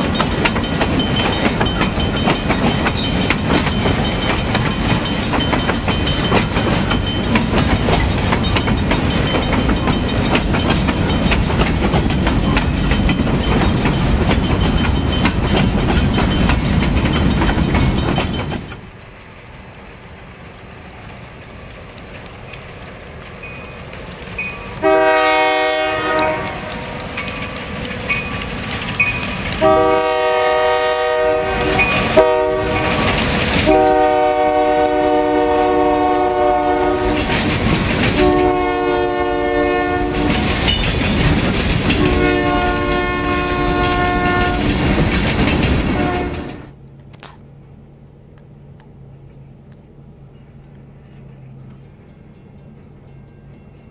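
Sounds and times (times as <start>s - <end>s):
freight car wheels clicking on rails: 0.0s - 24.9s, 26.2s - 29.9s, 31.6s - 33.7s, 37.0s - 38.5s, 40.0s - 42.6s, 43.4s - 46.4s
distant train rumble: 0.0s - 53.9s
locomotive air horn: 24.8s - 26.9s, 29.6s - 37.4s, 38.1s - 40.5s, 42.0s - 44.7s, 45.9s - 46.7s.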